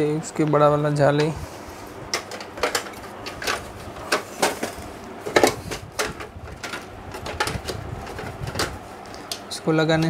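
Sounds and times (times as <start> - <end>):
plastic cover knocking and clicking: 2.2 - 8.8.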